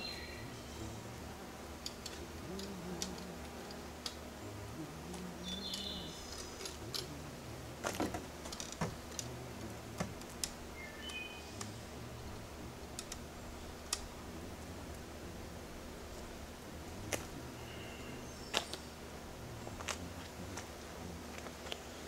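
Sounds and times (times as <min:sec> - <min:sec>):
steady low hum: 0:00.0 - 0:22.0
high bird chirps: 0:05.4 - 0:06.4, 0:10.8 - 0:11.6.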